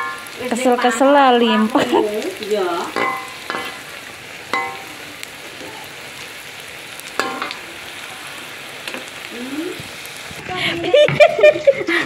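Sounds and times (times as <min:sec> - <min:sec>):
oil sizzling in a wok: 0:00.0 - 0:12.0
metal spatula clanking on wok: 0:02.9 - 0:03.8, 0:04.5 - 0:04.9, 0:07.2 - 0:07.6.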